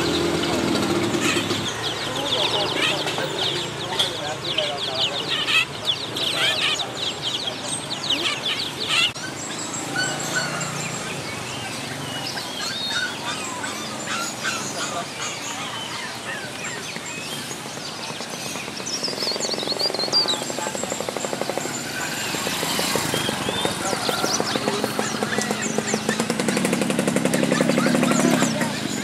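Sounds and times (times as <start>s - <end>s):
songbirds chirping and singing: 0.0s - 29.0s
fast rattling pulse: 17.5s - 29.0s.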